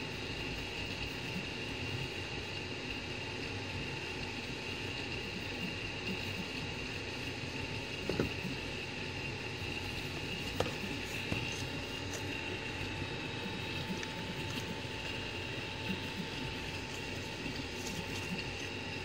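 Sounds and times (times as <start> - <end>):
printer fans and motors whirring: 0.0 - 19.0
high whine: 5.2 - 19.0.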